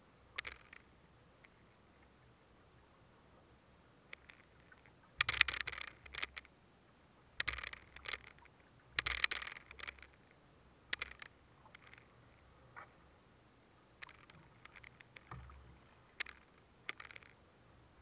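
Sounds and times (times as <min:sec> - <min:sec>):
fishing line scraping and rustling: 0:00.3 - 0:02.2, 0:04.1 - 0:06.6, 0:07.4 - 0:13.1, 0:14.0 - 0:17.4
sharp clicks: 0:00.4 - 0:01.6, 0:04.1 - 0:06.5, 0:07.4 - 0:12.1, 0:14.0 - 0:17.4.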